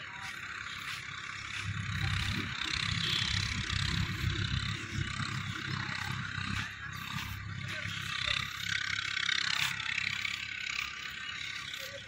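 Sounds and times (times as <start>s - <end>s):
wind rumbling on microphone: 0.0s - 11.2s
distant tractor engine hiss: 0.0s - 12.0s.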